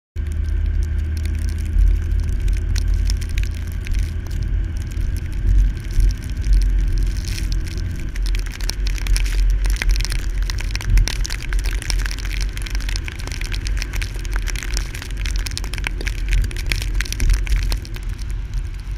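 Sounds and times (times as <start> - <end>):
car driving low rumble: 0.2 - 18.9
crackling ticks: 0.2 - 18.9.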